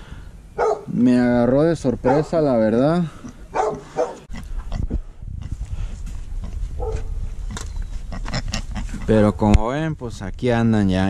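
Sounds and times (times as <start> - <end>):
pig grunting and snuffling: 2.9 - 9.3.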